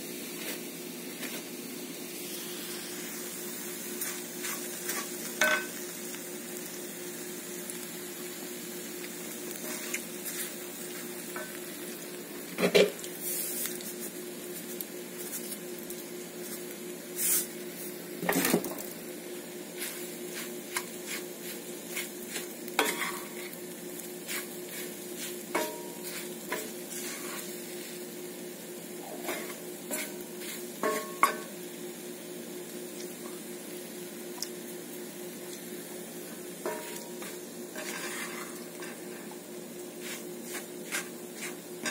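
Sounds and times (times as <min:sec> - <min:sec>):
steady hiss: 0:00.0 - 0:41.9
wooden spoon scraping iron skillet: 0:04.0 - 0:05.8, 0:09.5 - 0:10.6, 0:19.8 - 0:23.6, 0:24.2 - 0:28.0, 0:29.2 - 0:31.5, 0:36.6 - 0:41.9.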